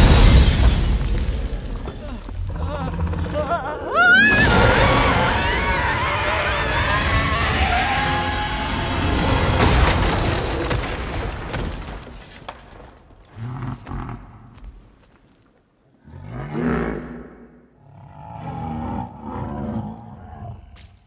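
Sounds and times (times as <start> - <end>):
low creature growls: 2.0 - 9.3, 16.0 - 20.8.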